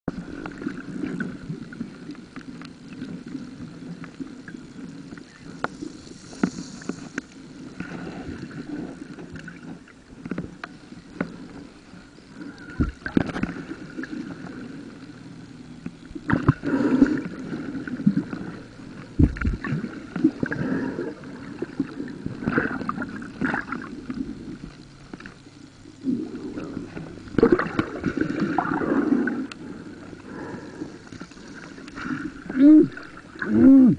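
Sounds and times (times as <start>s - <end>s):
irregular clicks underwater: 0.1s - 33.6s
underwater sloshing water: 0.1s - 33.9s
heavy thuds underwater: 19.1s - 19.8s.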